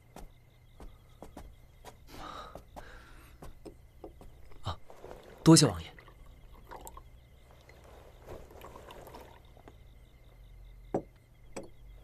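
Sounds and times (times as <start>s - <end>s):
tea trickling into a cup: 4.6s - 9.7s.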